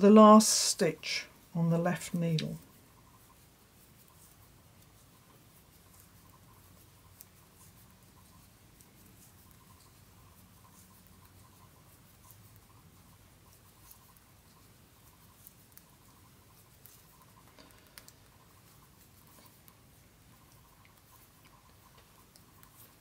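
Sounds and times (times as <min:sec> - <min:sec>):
knitting needle clicks: 0:16.8 - 0:18.4.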